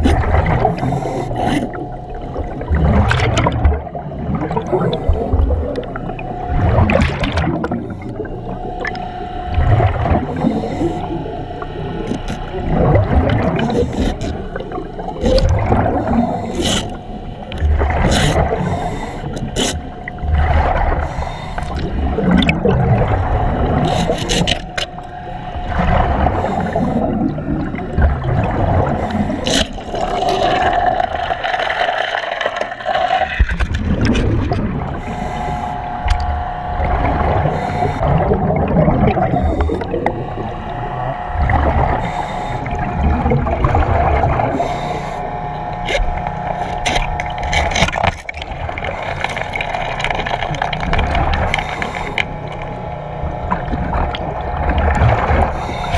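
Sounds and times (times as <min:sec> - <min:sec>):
faint steady whine: 0:00.0 - 0:55.9
rumbling exhaust bubbles: 0:00.0 - 0:55.9
air hissing through regulator: 0:10.2 - 0:27.8, 0:34.9 - 0:38.2, 0:39.1 - 0:47.8.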